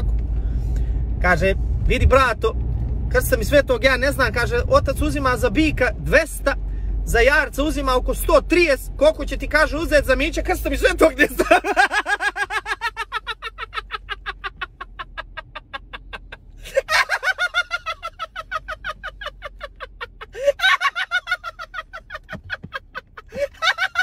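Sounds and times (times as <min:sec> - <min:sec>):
man cackling laughter: 0:11.2 - 0:24.0.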